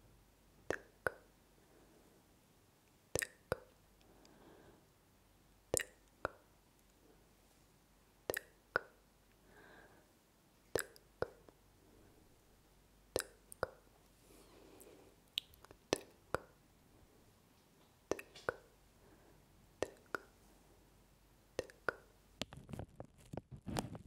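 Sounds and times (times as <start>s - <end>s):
tongue clicks: 0.6s - 1.3s, 3.1s - 4.4s, 5.7s - 6.5s, 8.3s - 9.0s, 10.7s - 11.6s, 13.1s - 13.9s, 15.3s - 16.6s, 18.1s - 18.7s, 19.8s - 20.3s, 21.6s - 22.1s.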